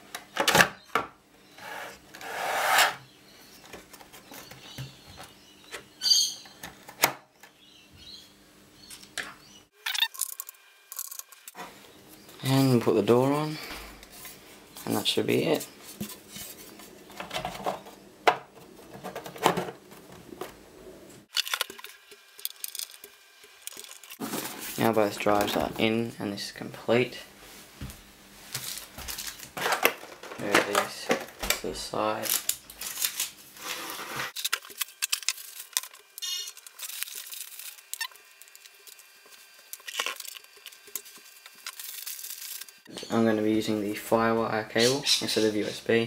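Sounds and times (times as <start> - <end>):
plastic packaging rustling: 21.3 - 25.8, 28.5 - 42.9.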